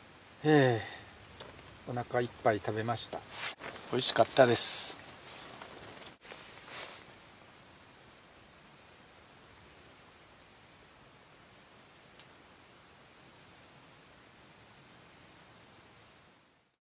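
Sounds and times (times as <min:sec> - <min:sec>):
insects trilling: 0:00.0 - 0:16.8
faint click: 0:12.2 - 0:12.4.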